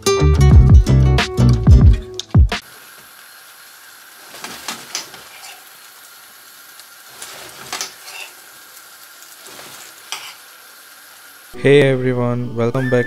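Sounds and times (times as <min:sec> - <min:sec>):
sauce sizzling in a pan: 0:02.6 - 0:11.6
metal spoon scraping a pan: 0:04.4 - 0:05.7, 0:07.2 - 0:08.4, 0:09.4 - 0:10.5.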